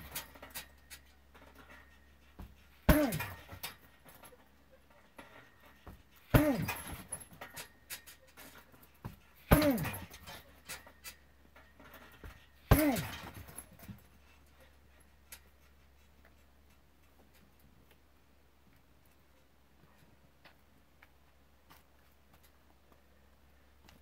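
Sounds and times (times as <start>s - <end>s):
bag hardware rattling: 0.0s - 14.1s
kicks smacking a punching bag: 2.4s - 3.8s, 5.9s - 7.4s, 9.0s - 10.3s, 12.2s - 13.9s
short grunt: 2.9s - 3.5s, 6.3s - 7.0s, 9.5s - 10.3s, 12.7s - 13.5s.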